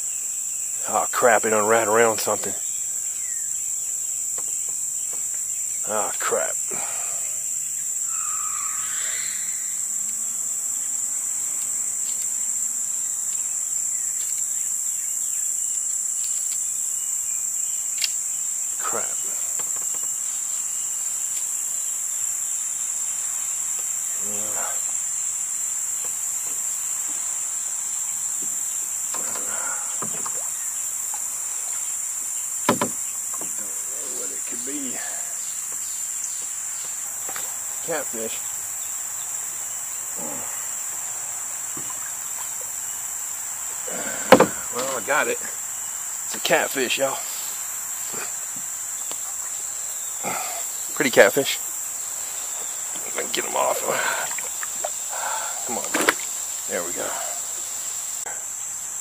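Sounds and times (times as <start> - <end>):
cicadas singing: 0.0 - 59.0
sharp knocks: 32.6 - 33.6, 44.2 - 44.9.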